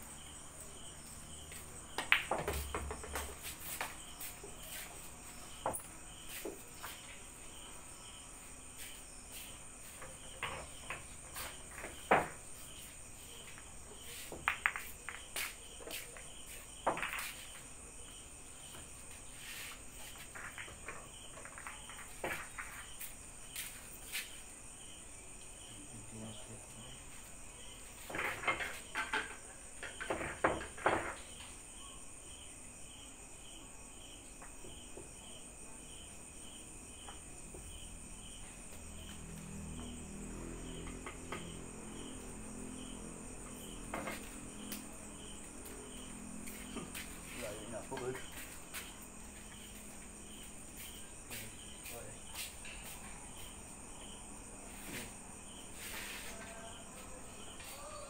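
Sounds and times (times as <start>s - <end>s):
insects chirping: 0.0s - 58.0s
pool balls clacking: 1.9s - 4.0s, 13.5s - 17.4s, 28.0s - 31.3s.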